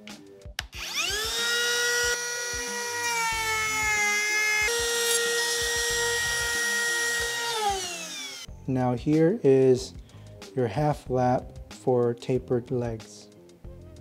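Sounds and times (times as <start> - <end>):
router whining while cutting: 0.7 - 8.5.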